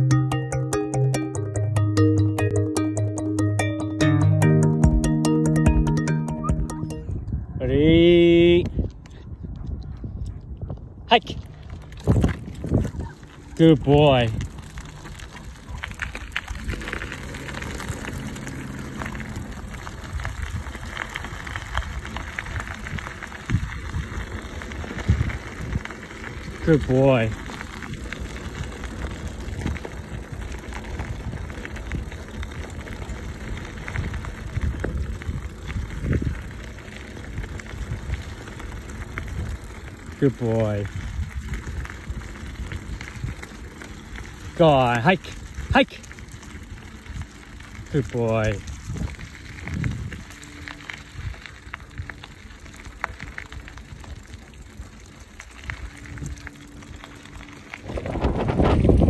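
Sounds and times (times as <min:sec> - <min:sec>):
wind on microphone: 0:07.0 - 0:13.2, 0:48.8 - 0:50.3, 0:57.8 - 0:59.0
bicycle tyres on gravel: 0:08.2 - 0:59.0.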